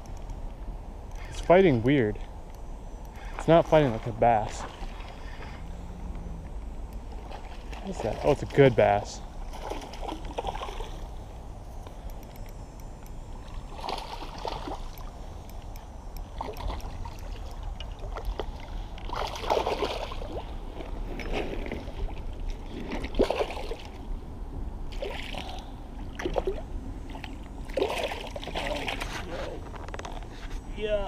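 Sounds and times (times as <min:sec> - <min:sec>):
steady low rumble: 0:00.0 - 0:31.0
fish splashing in water: 0:09.5 - 0:11.1, 0:13.7 - 0:15.1, 0:16.4 - 0:20.9, 0:24.9 - 0:29.0.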